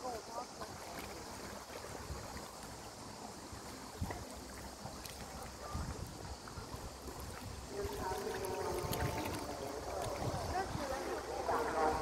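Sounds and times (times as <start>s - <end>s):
water lapping among rocks: 0.0s - 12.0s
wind rumbling on microphone: 3.4s - 12.0s.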